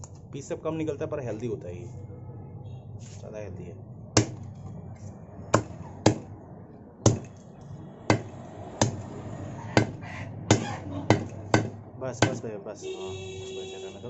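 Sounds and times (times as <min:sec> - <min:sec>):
cleaver chopping chicken on block: 0:04.2 - 0:04.5, 0:05.5 - 0:06.3, 0:07.1 - 0:07.3, 0:08.1 - 0:09.1, 0:09.7 - 0:12.4.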